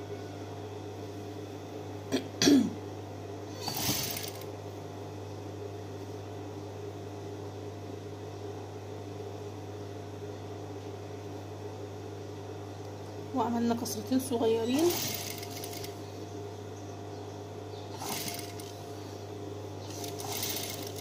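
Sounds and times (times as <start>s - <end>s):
sewing machine motor humming: 3.5s - 4.5s, 14.6s - 16.0s, 17.9s - 18.8s, 19.8s - 21.0s.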